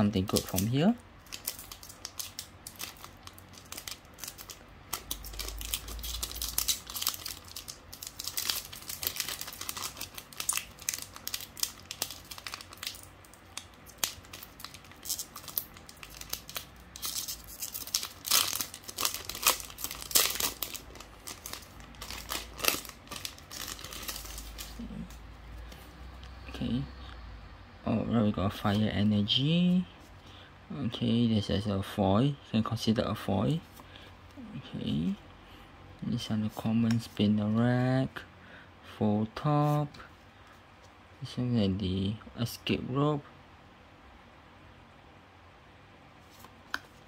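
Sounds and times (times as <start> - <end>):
foil wrapper crinkling and tearing: 0.0 - 25.2.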